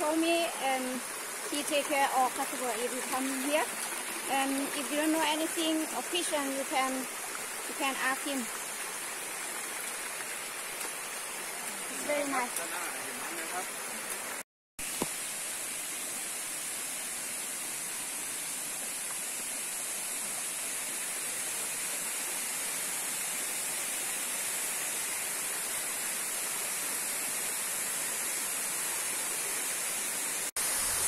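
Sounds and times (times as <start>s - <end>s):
waterfall rushing: 0.0s - 14.4s.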